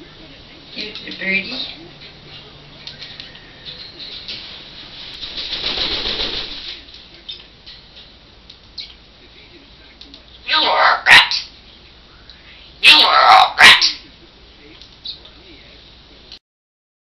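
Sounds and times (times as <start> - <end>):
parrot flapping wings: 4.2 - 7.0.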